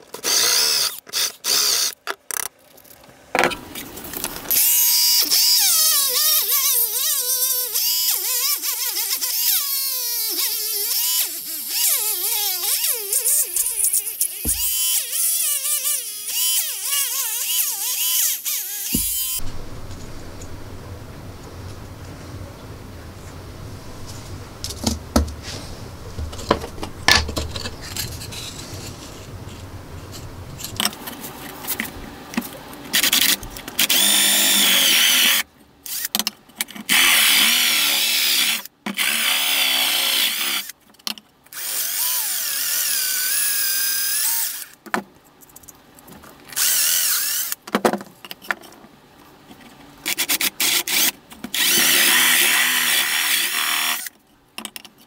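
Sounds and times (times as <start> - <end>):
power drill boring through plywood: 0.2 - 2.0, 4.5 - 19.4, 33.0 - 36.0, 36.9 - 40.7, 50.9 - 54.1
plywood pieces clicking and knocking: 26.2 - 28.1, 54.6 - 55.0.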